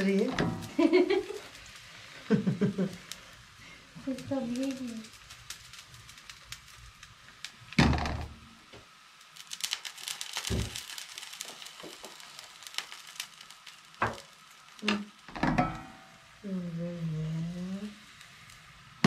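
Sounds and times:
batter sizzling in a frying pan: 0:00.0 - 0:19.0
pan knocking on iron grate: 0:15.3 - 0:16.0.

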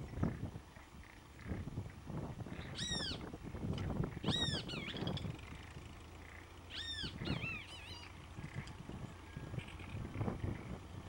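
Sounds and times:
tractor engine rumble: 0:00.0 - 0:11.0
bird squealing calls: 0:02.6 - 0:03.2, 0:04.2 - 0:05.3, 0:06.3 - 0:08.6.

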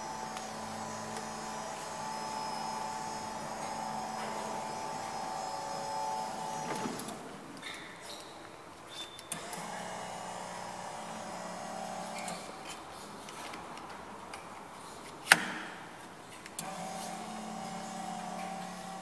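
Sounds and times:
electric lift motor humming: 0:00.0 - 0:07.5, 0:09.3 - 0:12.7, 0:16.6 - 0:19.0.

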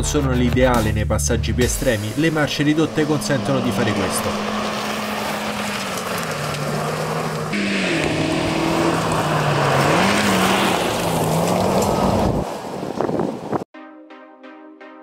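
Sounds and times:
car engine under load: 0:02.1 - 0:13.7
tyres crunching on gravel: 0:02.3 - 0:13.2.

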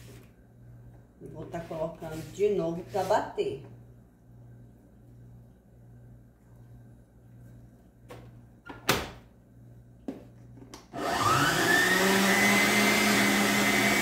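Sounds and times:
stand mixer motor whining: 0:10.9 - 0:14.0.

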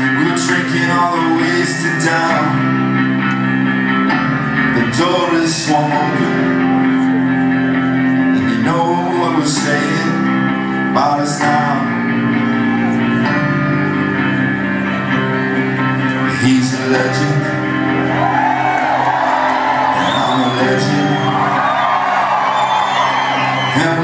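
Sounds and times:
man singing: 0:00.0 - 0:03.1, 0:04.6 - 0:07.4, 0:08.2 - 0:12.6, 0:16.1 - 0:18.0, 0:19.9 - 0:21.6, 0:23.7 - 0:24.0
guitar chords ringing: 0:00.0 - 0:24.0.

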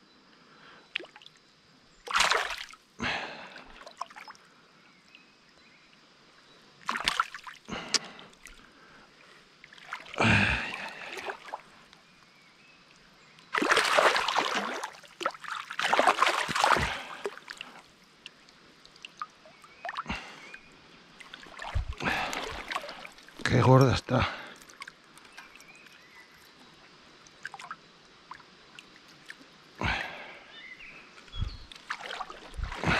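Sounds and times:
fish splashing in water: 0:02.1 - 0:02.8, 0:06.9 - 0:07.6, 0:13.5 - 0:18.4, 0:21.2 - 0:23.4, 0:31.7 - 0:32.9.

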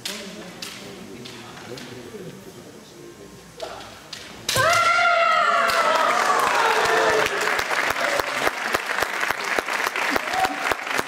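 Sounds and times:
applause: 0:05.8 - 0:11.0.

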